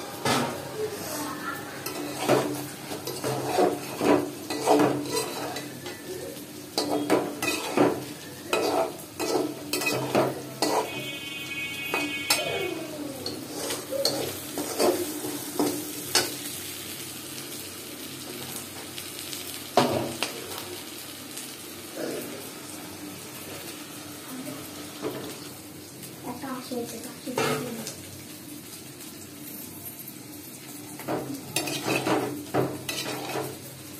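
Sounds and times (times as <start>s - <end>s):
food sizzling in oil: 0.0s - 33.9s
metal spatula scraping a pot: 1.8s - 5.9s, 6.8s - 11.3s, 13.2s - 15.4s, 31.6s - 33.6s.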